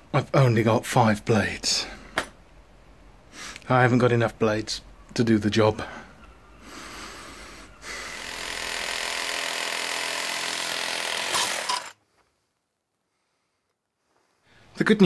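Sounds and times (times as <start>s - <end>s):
reciprocating saw cutting metal: 7.8s - 12.0s.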